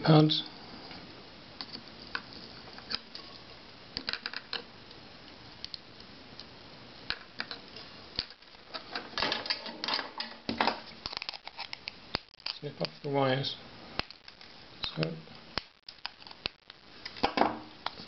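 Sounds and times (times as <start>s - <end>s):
circuit board clatter and rustle: 7.1s - 12.8s.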